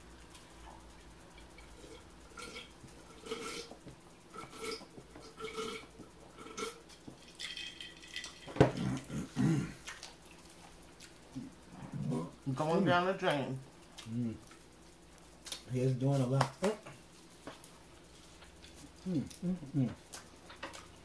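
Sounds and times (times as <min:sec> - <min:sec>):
people chewing and lip-smacking: 0:08.2 - 0:11.7, 0:13.8 - 0:15.7, 0:17.6 - 0:21.0.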